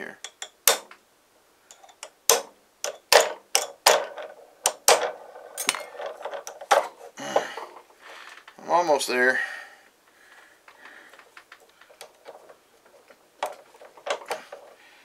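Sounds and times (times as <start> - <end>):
hammer knocking on wood block: 0.3 - 0.9, 2.3 - 4.1.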